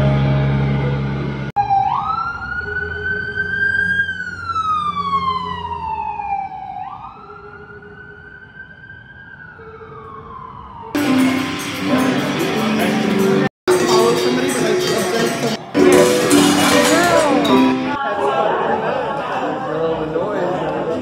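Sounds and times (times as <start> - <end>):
siren-like electronic tone: 0.0 - 11.6.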